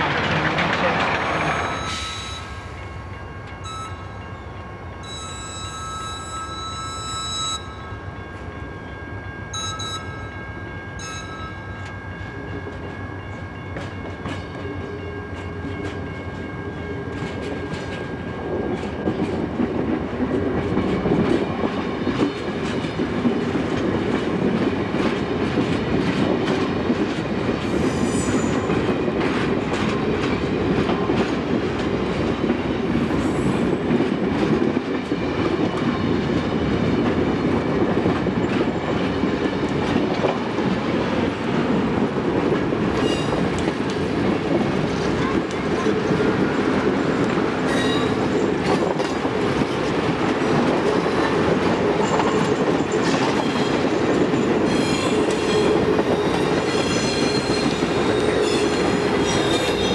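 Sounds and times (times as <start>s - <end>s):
wheels clicking over rail joints: 0.0s - 1.9s
train rumbling past: 0.0s - 59.9s.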